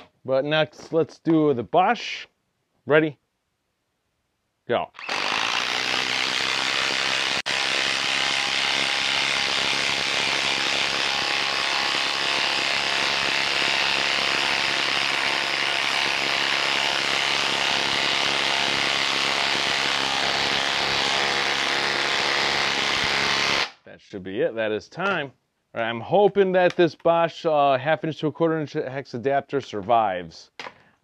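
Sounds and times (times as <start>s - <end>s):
impact driver hammering: 5.0s - 23.7s.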